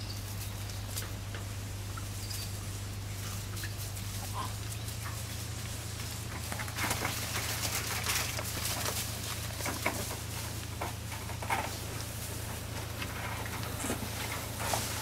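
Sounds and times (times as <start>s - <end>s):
steady low hum: 0.0s - 15.0s
footsteps through dry leaves: 1.6s - 13.0s.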